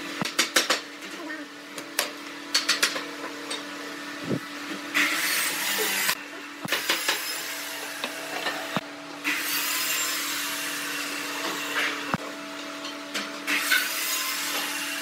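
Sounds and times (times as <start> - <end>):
steady hum: 4.0 - 4.7.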